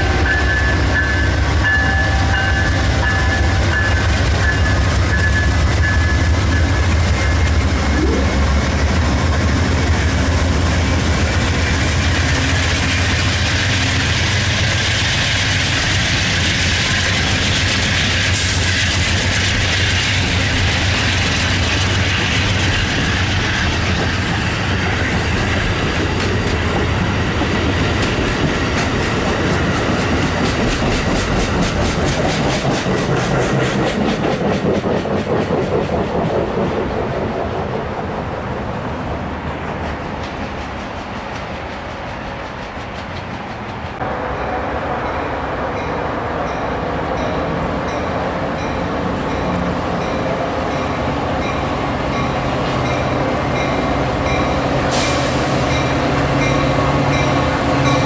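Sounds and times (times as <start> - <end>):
diesel locomotive engine hum: 0.0 - 58.0
train wheels clattering: 8.6 - 37.9, 39.5 - 44.0.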